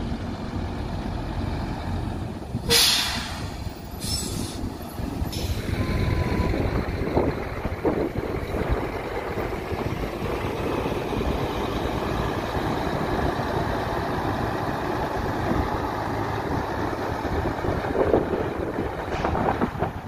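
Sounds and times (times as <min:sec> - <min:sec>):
truck diesel engine running: 0:00.0 - 0:20.0.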